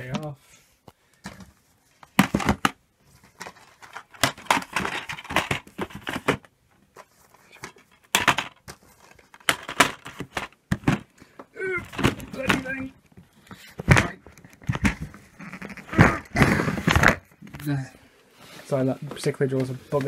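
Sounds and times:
plastic cases clacking: 1.2 - 17.7.

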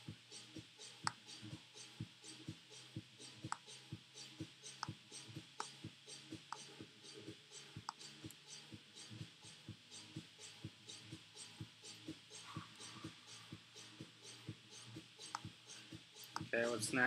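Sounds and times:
faint evenly spaced clicking: 0.0 - 17.0.

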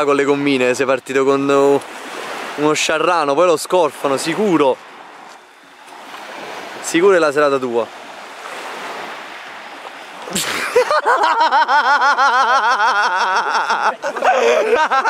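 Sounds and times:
sea waves washing: 0.0 - 15.0
men laughing rhythmically: 10.3 - 15.0.

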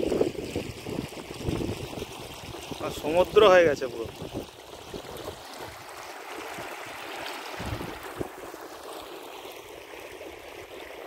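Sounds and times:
floodwater rushing: 0.0 - 11.0
wind bumps on microphone: 7.6 - 8.3.

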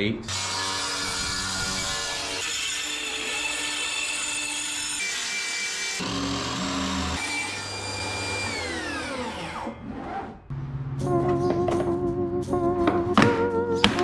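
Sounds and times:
jigsaw cutting a board: 0.3 - 9.8
table saw running: 0.3 - 9.9
circular saw cutting plywood: 0.3 - 10.4.

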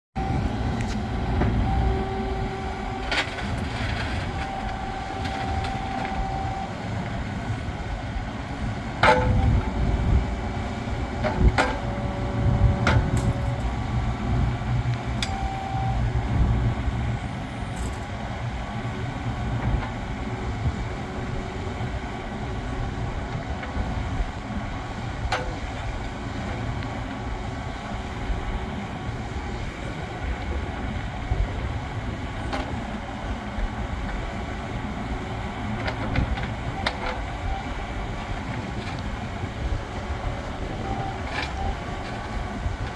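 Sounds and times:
excavator diesel engine droning: 0.1 - 42.9
hydraulic whines: 0.2 - 6.9.

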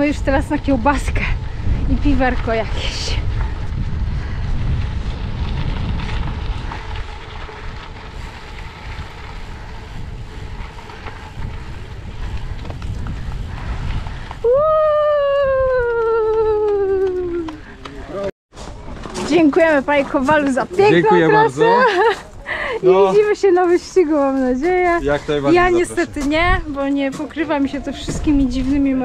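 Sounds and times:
wind buffeting microphone: 0.0 - 29.0
long falling tone: 14.4 - 17.6.

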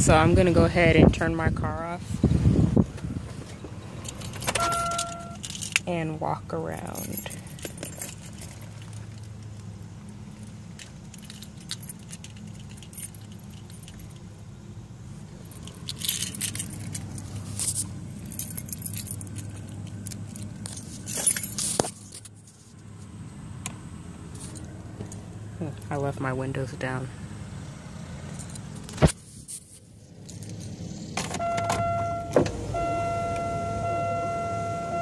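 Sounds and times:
car door opening: 2.8 - 5.5, 31.1 - 35.0
car keys jangling: 3.9 - 14.6, 15.3 - 22.6, 24.3 - 25.3, 28.2 - 35.0.

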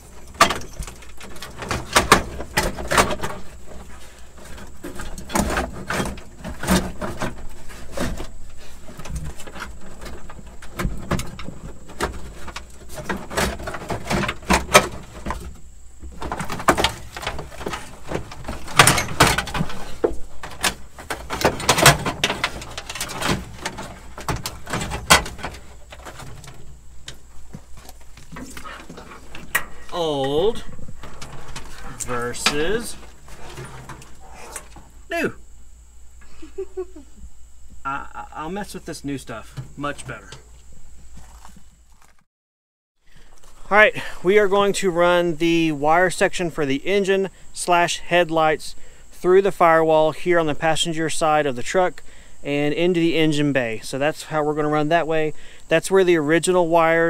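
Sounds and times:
wires rustling and scraping: 0.0 - 35.2, 38.4 - 42.3.

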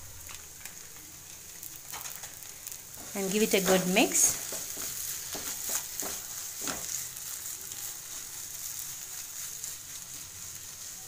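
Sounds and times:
food sizzling in a pan: 0.0 - 11.0
spoon scraping pan: 3.0 - 7.2.

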